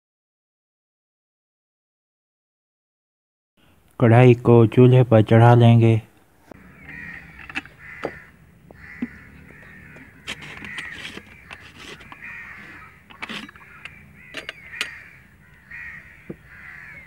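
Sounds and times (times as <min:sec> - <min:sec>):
crows cawing: 0:06.6 - 0:17.0
sharp clicks and knocks: 0:09.9 - 0:12.3, 0:13.0 - 0:15.0.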